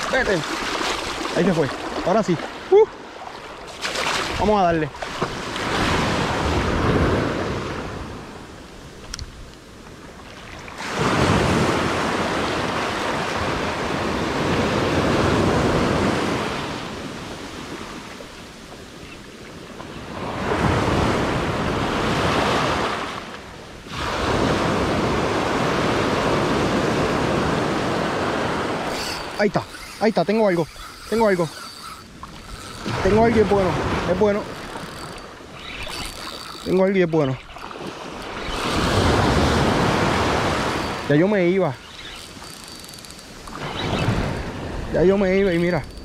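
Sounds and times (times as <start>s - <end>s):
small waves breaking on sand: 0.0s - 9.0s, 10.0s - 42.4s.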